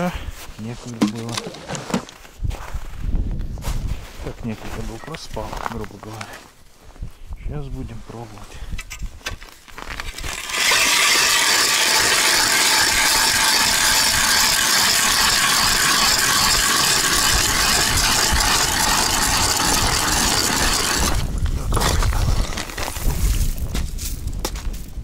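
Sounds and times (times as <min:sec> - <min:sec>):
ice auger grinding into ice: 0:00.8 - 0:02.2, 0:09.7 - 0:23.5.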